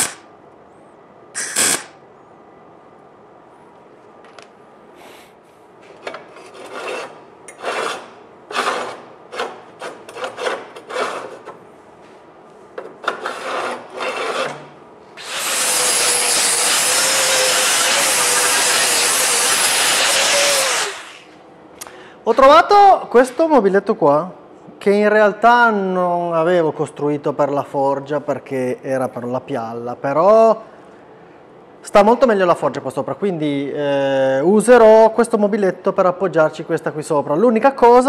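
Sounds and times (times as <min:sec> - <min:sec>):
steel bar scraping on rail: 0:06.4 - 0:11.4, 0:13.1 - 0:14.7.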